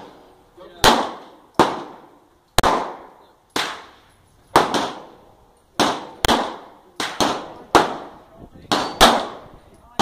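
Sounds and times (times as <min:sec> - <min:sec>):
handgun shots with echo: 0:02.6 - 0:05.2, 0:08.7 - 0:09.4.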